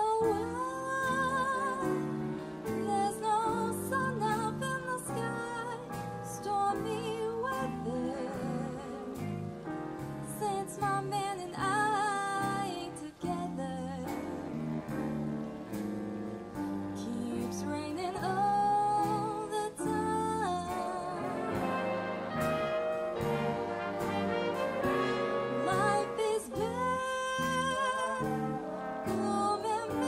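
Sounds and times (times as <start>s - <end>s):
woman singing with vibrato: 0.0s - 2.1s, 2.8s - 9.4s, 10.3s - 14.7s, 17.0s - 22.2s, 25.1s - 30.0s
big band playing jazz ballad: 0.0s - 30.0s.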